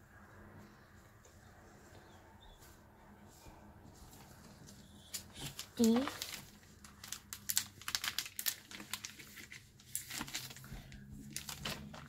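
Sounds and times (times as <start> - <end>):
plastic binder pocket crinkling: 5.0 - 12.0.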